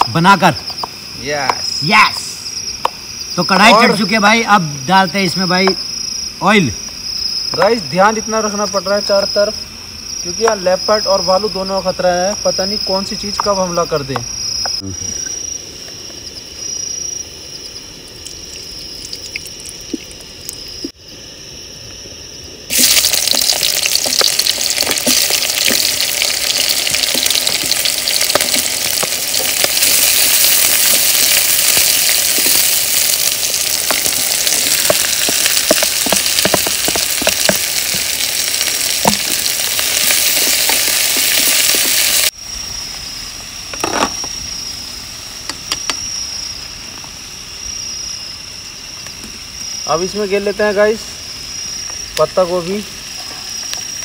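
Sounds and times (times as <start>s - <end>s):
crickets chirping: 0.0s - 54.0s
vegetables sizzling in hot oil: 22.7s - 42.4s.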